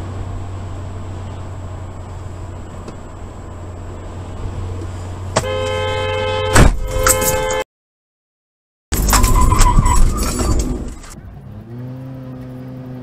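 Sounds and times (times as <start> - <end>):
car driving hum: 0.0 - 7.6, 8.9 - 13.0
car horn blaring: 5.4 - 7.6
loud thump: 6.5 - 7.4.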